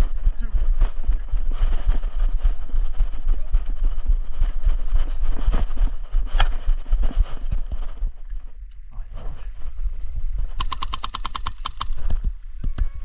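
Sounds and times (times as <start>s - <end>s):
low rumble on microphone: 0.0s - 10.6s, 11.7s - 13.0s
gear and camera jostling: 9.5s - 12.9s.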